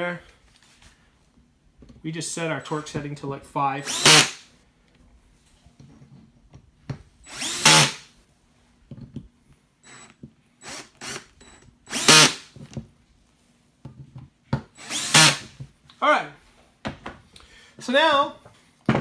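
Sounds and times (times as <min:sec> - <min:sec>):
cordless drill driving screws: 0:03.8 - 0:04.4, 0:07.3 - 0:08.1, 0:09.8 - 0:12.5, 0:14.8 - 0:15.6.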